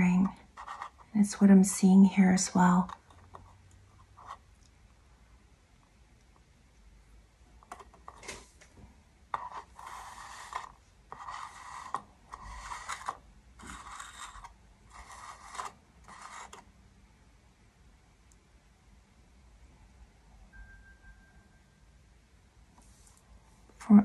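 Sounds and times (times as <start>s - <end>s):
hard object scraping hard surface: 0.0s - 1.4s, 9.3s - 16.6s.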